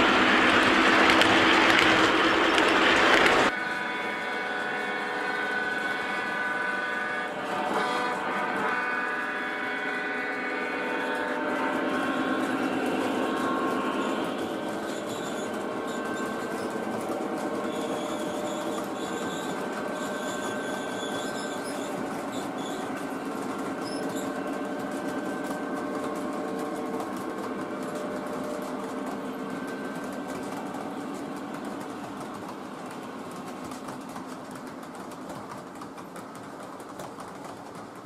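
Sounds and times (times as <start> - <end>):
model train wheels clattering: 0.0 - 3.6, 11.0 - 38.0.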